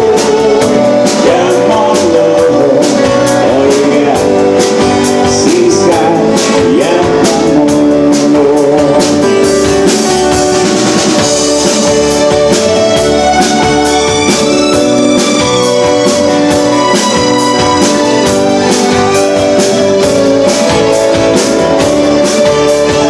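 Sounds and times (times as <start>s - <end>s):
man singing: 0.0s - 10.4s
drum kit: 0.0s - 23.0s.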